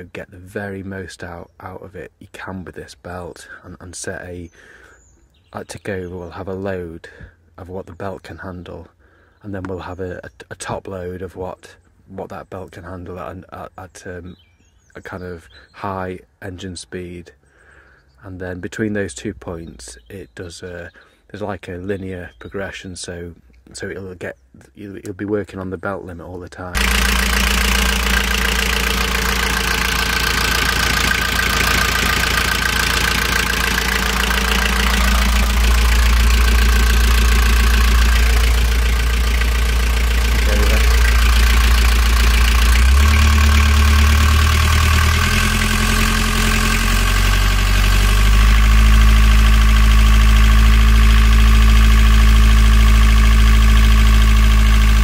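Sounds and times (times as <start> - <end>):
diesel engine running: 26.7 - 55.0.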